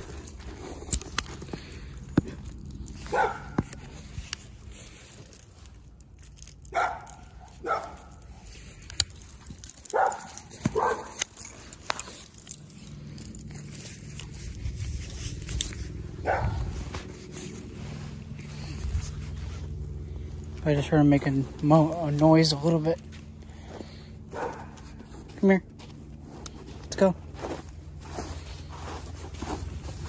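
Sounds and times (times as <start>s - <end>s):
dog barking: 3.1s - 3.6s, 6.7s - 8.2s, 9.9s - 11.2s, 16.2s - 16.8s, 24.3s - 25.0s.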